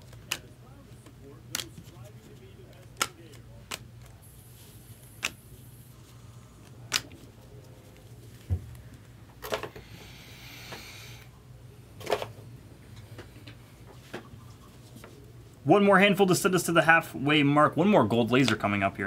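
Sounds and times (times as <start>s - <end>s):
cards tapping and clicking: 0.0s - 4.2s
cards rustling: 0.0s - 9.7s
faint low hum: 0.0s - 19.0s.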